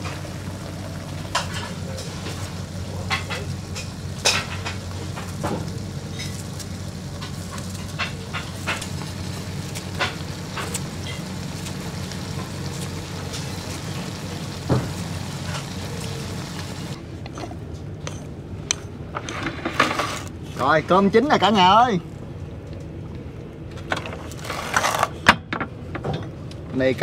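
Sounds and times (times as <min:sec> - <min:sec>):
fish sizzling in a pot: 0:00.0 - 0:17.0.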